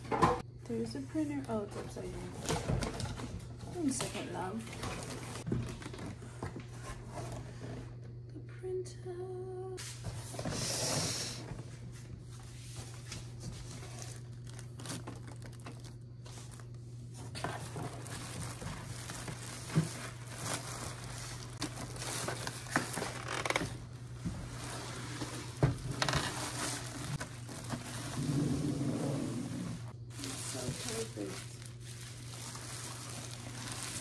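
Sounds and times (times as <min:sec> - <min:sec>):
steady low hum: 0:00.0 - 0:34.0
plastic bag crinkling: 0:03.8 - 0:06.1, 0:13.3 - 0:28.6, 0:30.0 - 0:34.0
cardboard box rustling: 0:13.4 - 0:23.8, 0:24.4 - 0:28.6.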